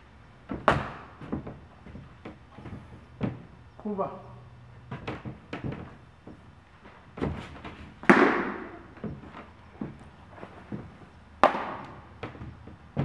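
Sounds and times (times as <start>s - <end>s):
footwork knocks: 0.4s - 3.6s, 7.1s - 10.0s, 10.7s - 13.0s
baseball smacking into glove: 0.6s - 1.1s, 8.0s - 8.8s, 11.4s - 12.0s.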